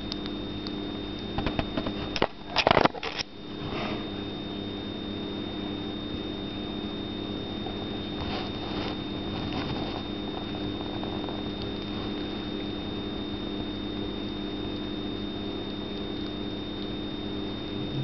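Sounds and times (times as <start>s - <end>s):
steady low hum: 0.0s - 18.0s
thin high whine: 0.0s - 18.0s
kitten licking fur: 7.8s - 12.4s.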